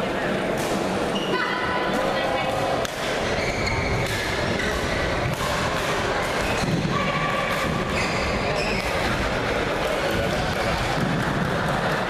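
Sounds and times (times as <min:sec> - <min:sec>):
background chatter: 0:00.0 - 0:12.0
sharp knocks from badminton play: 0:04.0 - 0:08.0.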